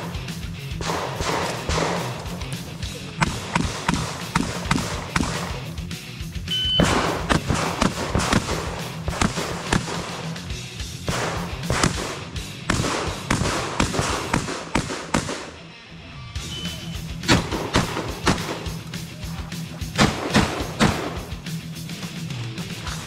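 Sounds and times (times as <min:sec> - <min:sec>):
rapid shotgun shots: 0:00.0 - 0:05.9, 0:06.8 - 0:15.6, 0:17.2 - 0:19.1, 0:19.8 - 0:21.6
background music: 0:00.0 - 0:23.0
shot timer beep: 0:06.5 - 0:06.9, 0:16.4 - 0:17.1.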